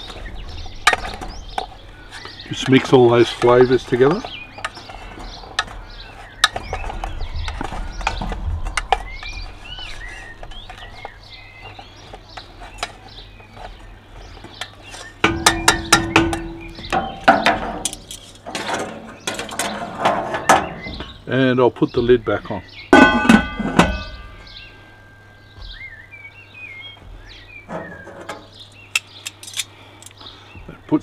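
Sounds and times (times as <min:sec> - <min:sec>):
birds chirping: 0:00.0 - 0:31.0
utensils scraping metal pot: 0:14.6 - 0:21.1.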